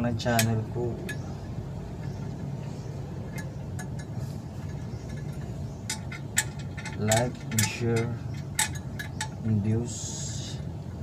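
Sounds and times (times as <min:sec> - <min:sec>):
steady low hum: 0:00.0 - 0:11.0
metallic clinks of bolts: 0:00.2 - 0:01.3, 0:03.3 - 0:09.5.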